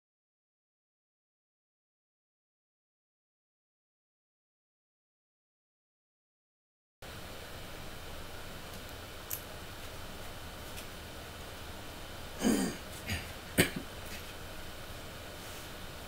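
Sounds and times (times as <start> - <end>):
steady background hiss: 7.0 - 16.0
man clearing throat: 12.4 - 13.9.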